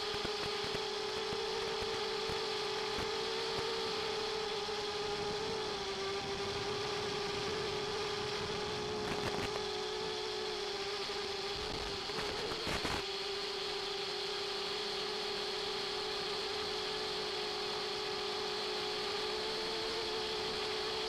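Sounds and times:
constant buzzing tone: 0.0s - 21.0s.

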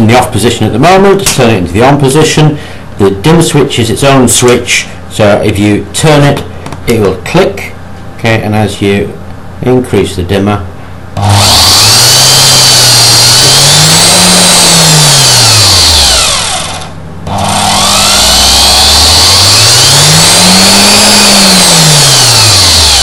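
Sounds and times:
electric motor whine: 11.2s - 23.0s.

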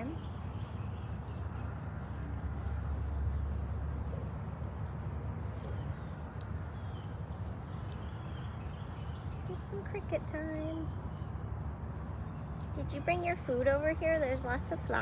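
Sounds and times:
small bird chirping: 0.0s - 14.0s
steady low rumble: 0.0s - 15.0s.

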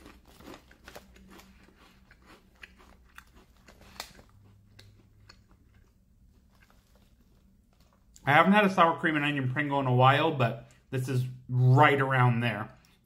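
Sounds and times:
person chewing crunchy chips: 0.0s - 8.3s.

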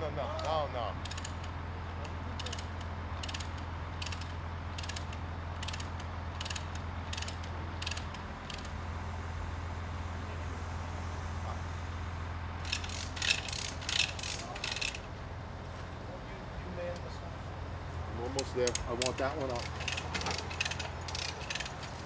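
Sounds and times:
diesel engine humming: 0.0s - 22.0s
ratchet wrench clicking: 0.4s - 8.7s, 12.6s - 15.1s, 18.6s - 21.8s
metallic clanks: 18.6s - 22.0s.

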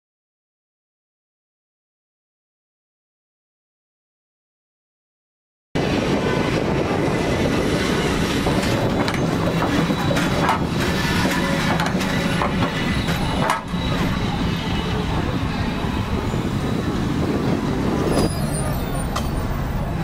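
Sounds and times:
tram wheels on rails: 5.8s - 20.0s.

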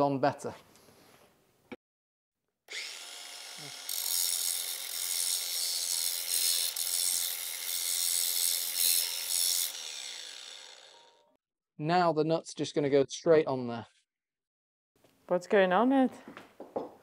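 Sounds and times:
angle grinder grinding metal: 2.7s - 11.3s.

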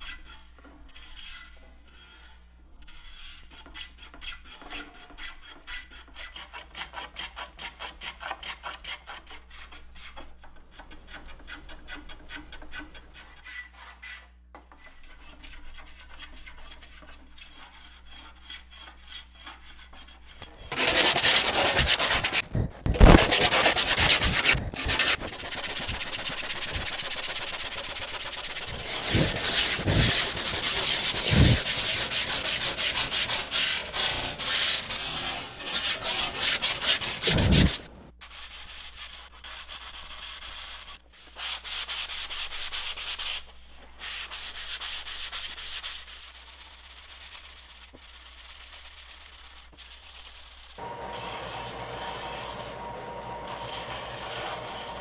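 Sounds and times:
sandpaper rubbing on wood: 15.1s - 52.8s, 53.4s - 55.0s.

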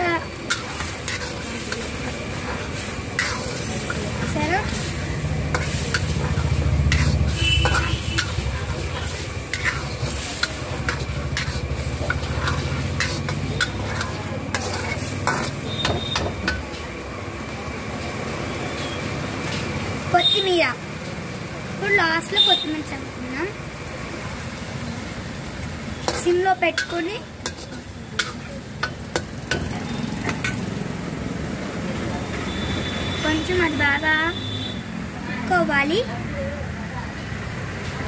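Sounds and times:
sauce sizzling in a pan: 0.0s - 16.6s, 21.9s - 31.0s
metal spatula scraping a wok: 0.0s - 16.9s, 25.7s - 30.7s.

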